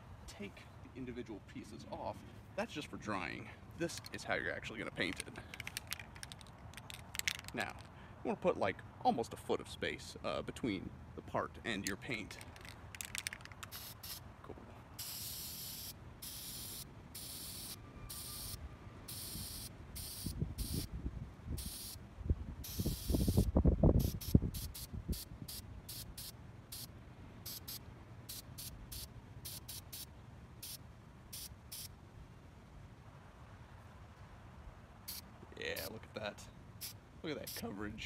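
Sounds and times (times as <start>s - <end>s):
aerosol spray hissing: 13.7s - 14.2s, 15.0s - 20.9s, 21.6s - 22.0s, 22.6s - 26.9s, 27.5s - 30.8s, 31.4s - 31.9s.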